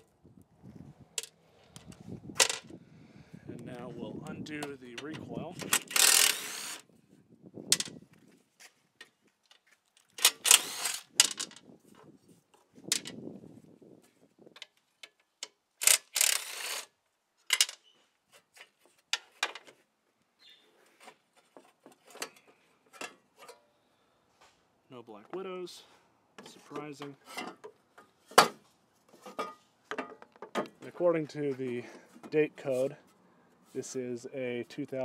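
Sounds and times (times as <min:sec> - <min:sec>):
bolts and housing clattering: 0:04.4 - 0:06.7, 0:17.4 - 0:18.0, 0:21.0 - 0:23.7
cordless drill spinning out bolts: 0:05.6 - 0:06.9, 0:10.2 - 0:11.6, 0:15.8 - 0:17.0.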